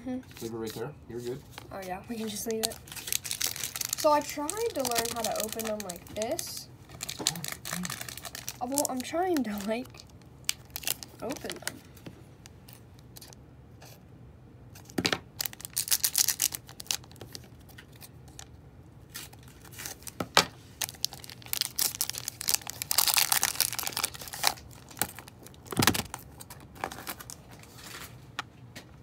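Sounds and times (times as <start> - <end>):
foil wrapper tearing and crinkling: 1.5 - 11.8, 15.4 - 18.5, 19.1 - 28.2.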